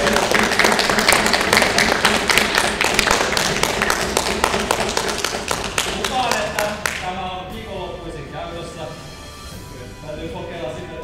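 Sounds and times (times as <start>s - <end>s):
small group clapping: 0.0s - 7.1s.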